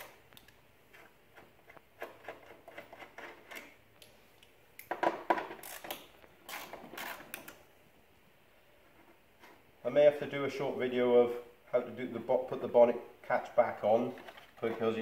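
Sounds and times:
hand ratchet clicking: 5.6 - 7.5.

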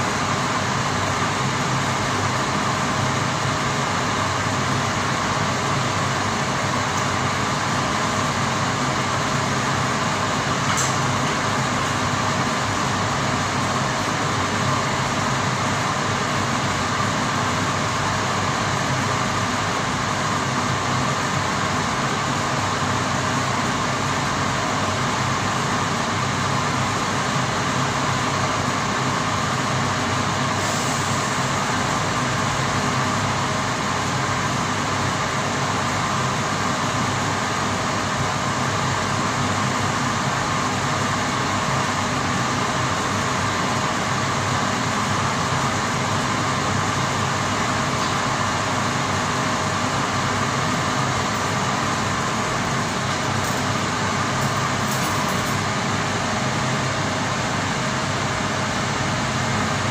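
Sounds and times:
machinery hum: 0.0 - 59.9.

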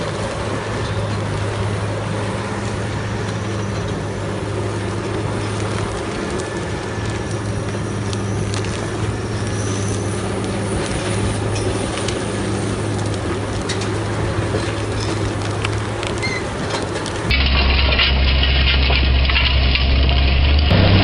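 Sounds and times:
tractor diesel engine running: 0.0 - 21.0
wood cracking and knocking: 10.4 - 21.0.

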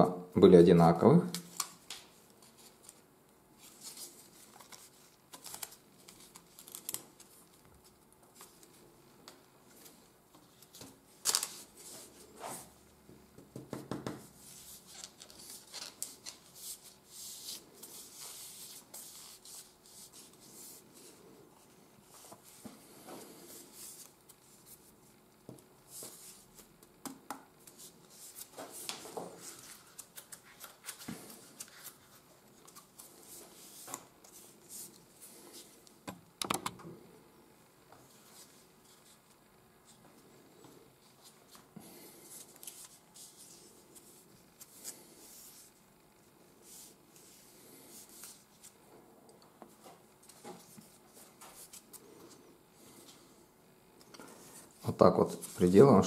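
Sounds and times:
paper rustling and rubbing: 3.6 - 8.8, 14.2 - 25.2, 27.6 - 35.8, 41.0 - 45.8, 49.7 - 52.4.

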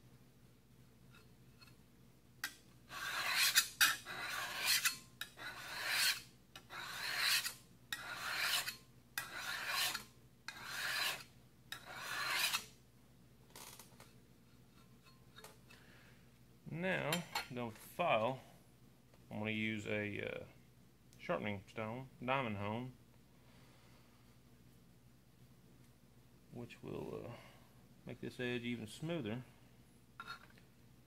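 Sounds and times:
hand file rasping on steel: 2.9 - 12.7.

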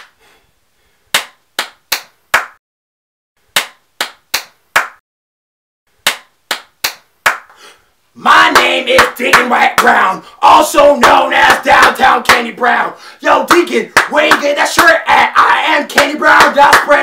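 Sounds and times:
hand claps: 1.2 - 2.6, 3.6 - 5.0, 6.0 - 7.6, 8.5 - 10.0, 11.0 - 12.5, 13.5 - 15.0, 15.9 - 17.0.

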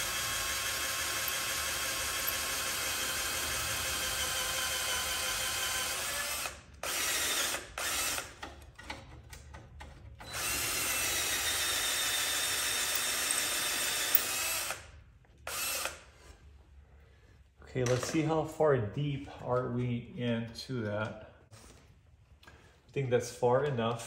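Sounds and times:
cordless drill whining: 0.0 - 8.4, 10.2 - 16.3.

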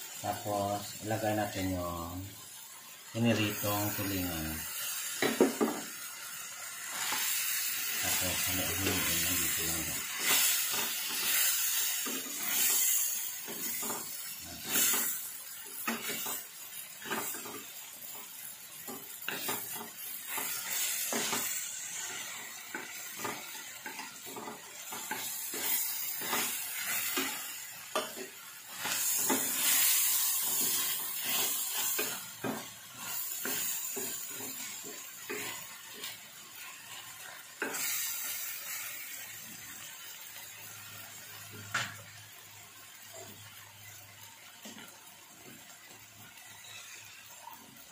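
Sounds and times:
fish sizzling in oil: 0.0 - 47.9
utensils clinking and scraping pan: 6.9 - 17.8, 18.8 - 38.5, 46.6 - 47.3.

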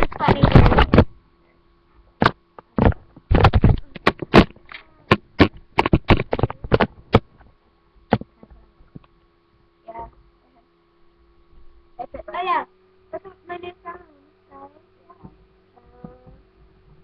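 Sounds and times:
webcam bumping and rubbing: 0.0 - 1.2, 2.2 - 7.4, 8.1 - 9.0
faint electrical hum: 0.0 - 17.0.

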